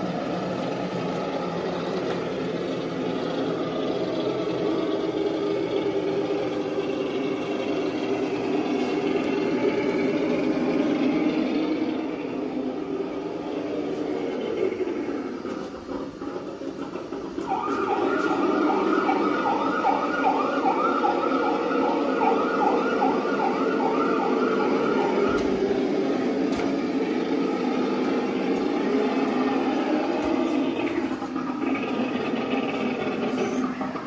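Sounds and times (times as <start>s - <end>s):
electric motor whining: 17.4s - 34.0s.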